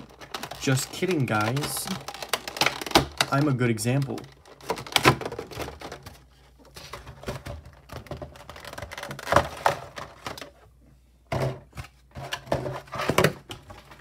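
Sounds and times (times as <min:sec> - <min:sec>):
plastic tray clicking and crinkling: 0:00.0 - 0:10.6.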